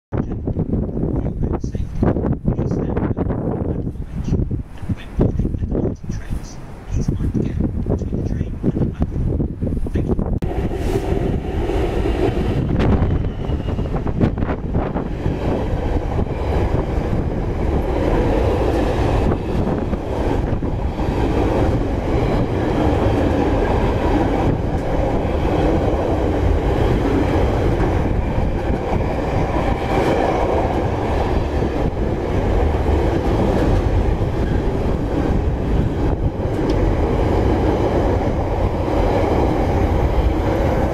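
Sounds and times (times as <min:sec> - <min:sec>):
freight train rumbling past: 0:00.2 - 0:40.9
wheels clacking over rails: 0:15.0 - 0:40.9.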